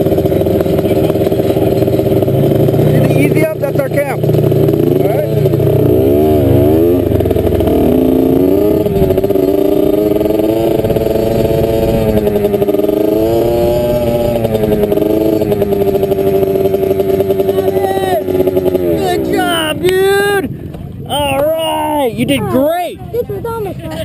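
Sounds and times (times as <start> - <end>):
dirt bike engine running: 0.0 - 24.0.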